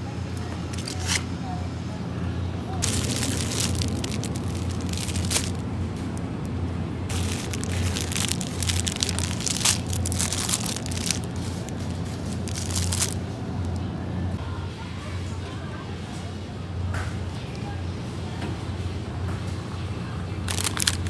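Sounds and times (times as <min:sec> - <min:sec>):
steady low hum: 0:00.0 - 0:14.8
plastic packaging crinkling: 0:02.8 - 0:05.6, 0:07.1 - 0:13.2, 0:20.5 - 0:21.0
packets dropped into plastic basket: 0:20.5 - 0:21.0.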